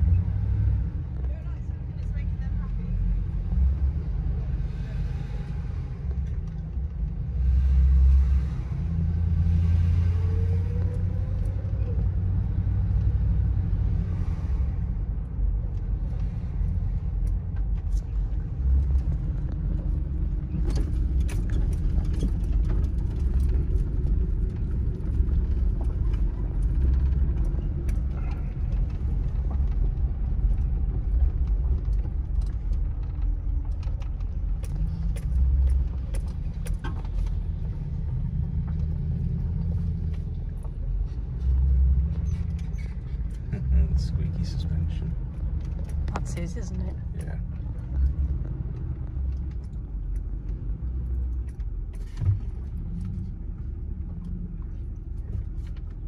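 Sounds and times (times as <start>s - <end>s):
car engine rumbling inside cabin: 0.0s - 56.0s
light clicks and rattles: 15.6s - 56.0s.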